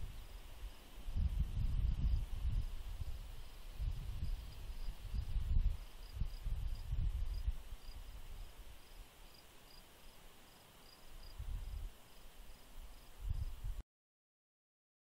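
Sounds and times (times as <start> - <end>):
steady insect hum: 0.0 - 13.8
crickets chirping: 1.6 - 13.6.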